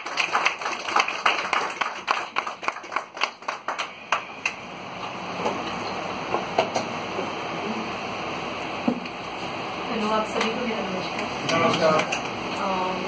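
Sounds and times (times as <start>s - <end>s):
audience applause: 0.0s - 4.6s
room hum: 0.0s - 13.0s.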